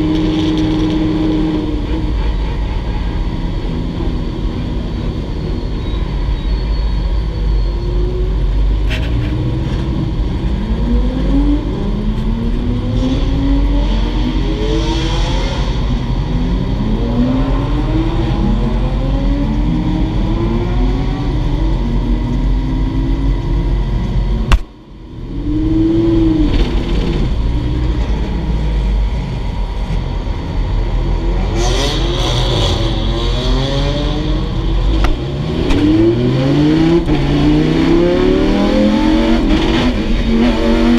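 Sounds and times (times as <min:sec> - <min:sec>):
sharp crack: 0:24.5 - 0:24.7
race car engine revving: 0:30.9 - 0:40.9.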